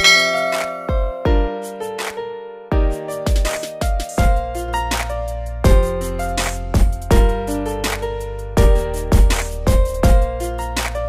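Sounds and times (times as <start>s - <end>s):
electronic music with kick drum: 0.0s - 1.8s, 2.7s - 11.0s.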